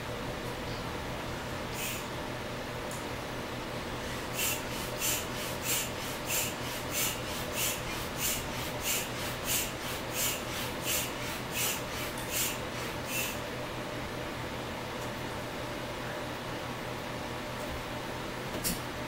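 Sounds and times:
hand air pump puffing: 4.3 - 13.4.

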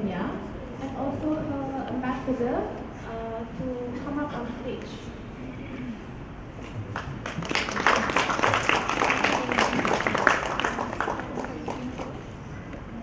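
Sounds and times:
audience applauding: 6.9 - 12.3.

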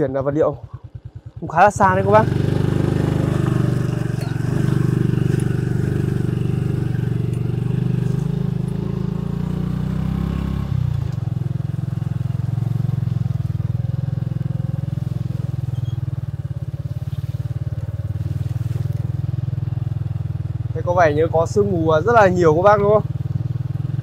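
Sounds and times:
small motorcycle engine running: 0.0 - 24.0.

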